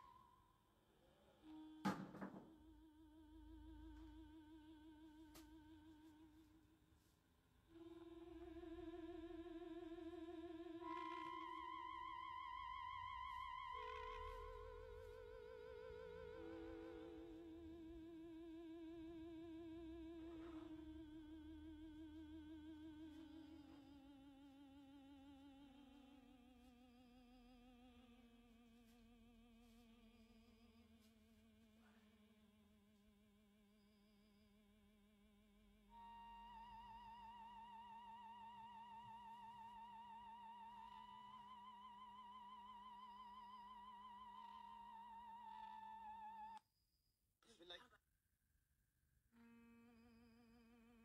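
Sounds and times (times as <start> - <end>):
eerie wavering held tone: 7.6 - 32.3, 33.4 - 46.6.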